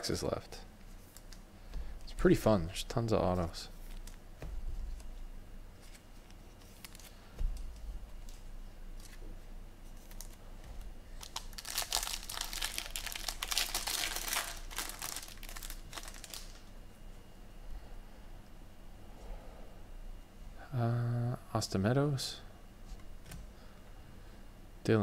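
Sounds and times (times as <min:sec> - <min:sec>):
foil wrapper crinkling and tearing: 0:11.2 - 0:16.6.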